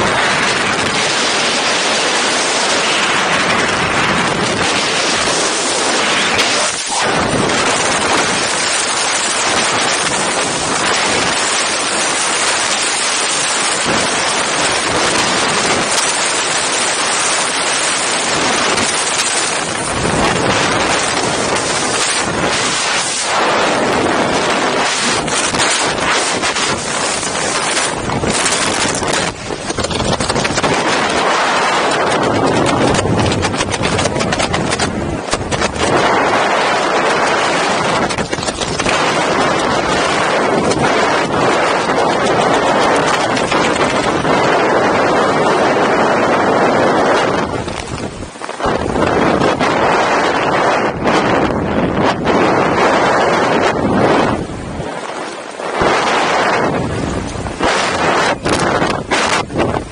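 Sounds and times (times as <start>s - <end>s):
wind battering microphone: 0.0s - 59.9s.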